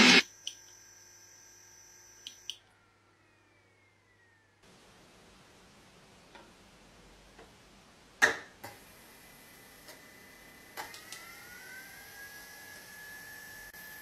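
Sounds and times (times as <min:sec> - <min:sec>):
spindle motor whine: 0:00.0 - 0:04.6, 0:08.9 - 0:14.0.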